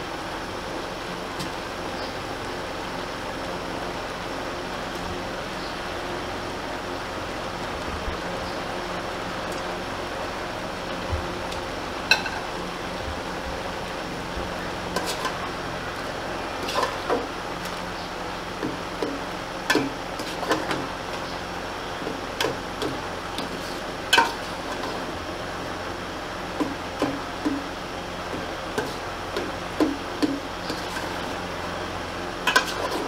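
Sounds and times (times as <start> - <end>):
metal spoon scraping a pot: 15.0 - 15.4, 16.6 - 17.2, 30.6 - 31.3, 32.5 - 33.0.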